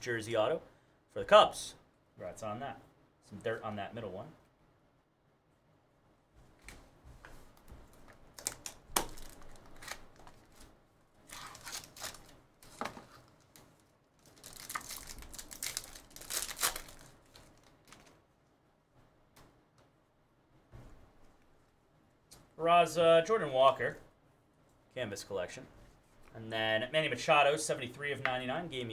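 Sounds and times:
foil wrapping tearing and crinkling: 8.4 - 10.6, 11.3 - 13.6, 14.2 - 18.1.

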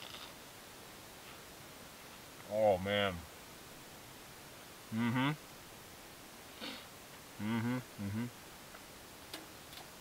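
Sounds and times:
sniff through nose: 6.6 - 6.9
man's pleased mmm: 7.4 - 8.4.

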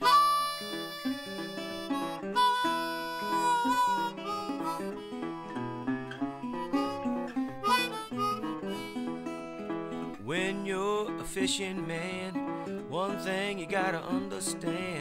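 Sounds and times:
harmonica: 0.0 - 10.2
plucked acoustic guitar: 0.0 - 15.0.

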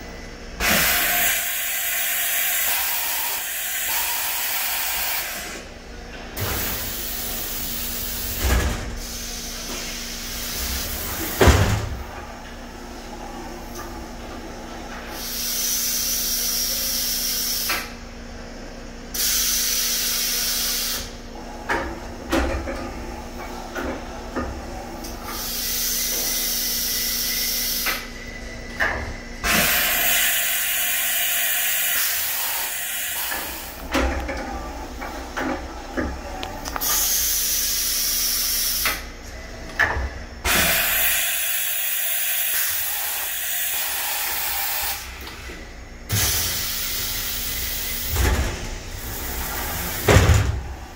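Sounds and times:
compressed air hiss: 15.1 - 17.9, 19.2 - 21.1, 25.3 - 28.0, 29.4 - 33.8, 36.8 - 39.0, 40.5 - 45.1, 46.1 - 48.1.

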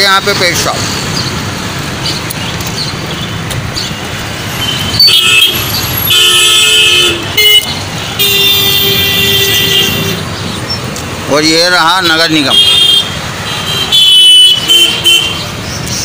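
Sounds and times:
street traffic rumbling: 0.0 - 16.0
vehicle horns honking: 4.5 - 10.3, 12.0 - 15.5.

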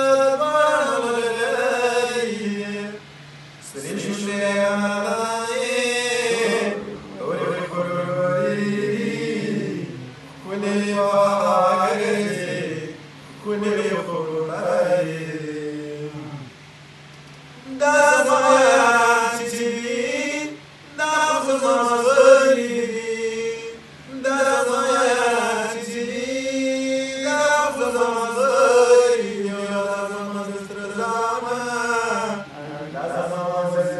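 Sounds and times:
man chanting poetry: 3.6 - 16.6, 17.6 - 33.9.

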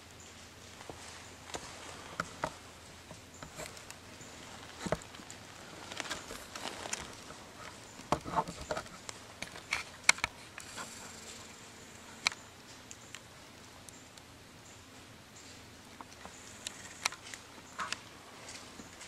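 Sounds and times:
faint rustles: 0.0 - 19.0
quiet woodland background: 0.0 - 19.0
small clicks and ticks: 0.0 - 19.0.

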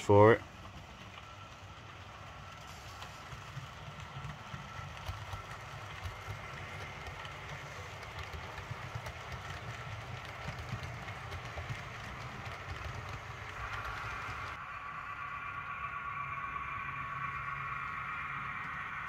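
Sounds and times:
wheels clicking over rail joints: 0.0 - 14.6
model train diesel engine sound: 0.0 - 19.0
thin whine: 13.3 - 19.0.

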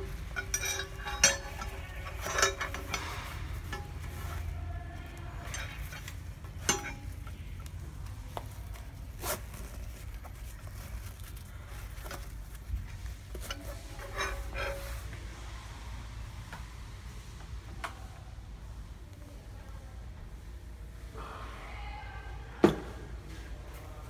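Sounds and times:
metal spanners clicking together: 0.0 - 4.4, 5.4 - 7.7
fabric rustling: 0.0 - 15.4.

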